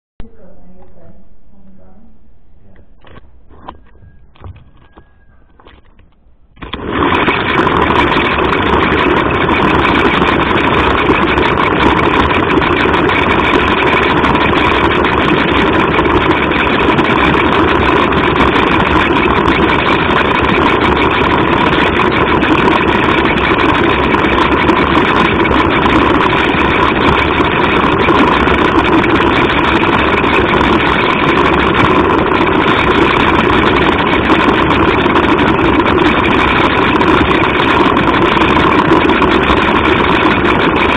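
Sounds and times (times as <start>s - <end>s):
small electric motor whining: 6.6s - 40.9s.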